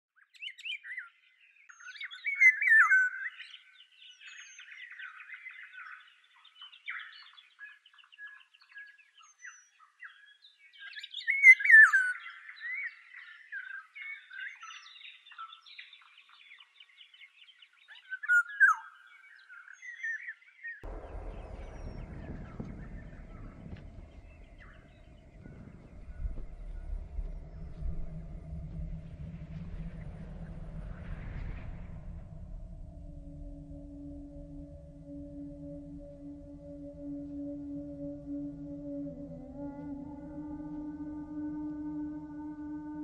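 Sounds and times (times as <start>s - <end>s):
songbirds singing and chirping: 0.2s - 41.5s
low even noise: 20.8s - 42.5s.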